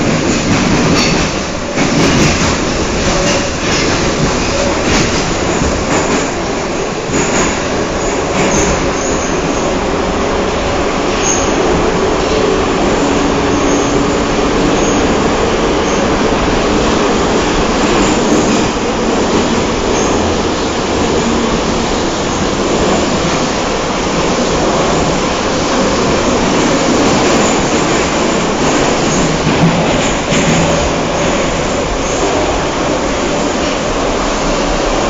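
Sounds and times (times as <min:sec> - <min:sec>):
train wheels roaring on rails: 0:00.0 - 0:35.0.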